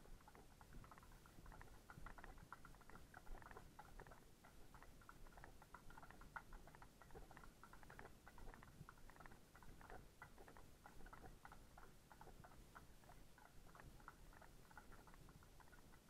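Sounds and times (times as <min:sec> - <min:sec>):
faint hoofbeats of horses: 0:00.0 - 0:16.0.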